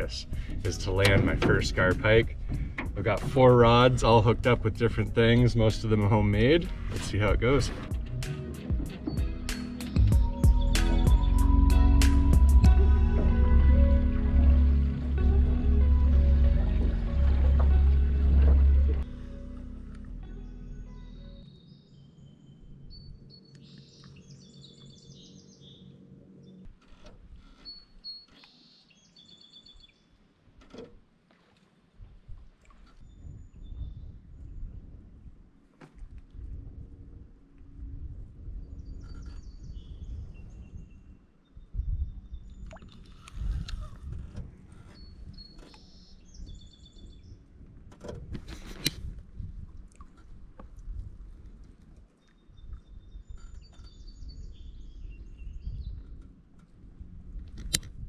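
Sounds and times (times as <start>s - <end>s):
birds chirping: 0.0s - 19.1s, 20.2s - 26.7s, 38.6s - 44.0s, 44.8s - 47.4s, 52.1s - 56.2s
wind rumble on microphone: 0.0s - 25.5s, 32.0s - 58.0s
low steady hum: 0.0s - 27.5s
small birds chirping and trilling: 21.0s - 26.7s, 27.6s - 30.2s, 38.6s - 44.0s, 44.8s - 47.4s, 52.2s - 56.2s.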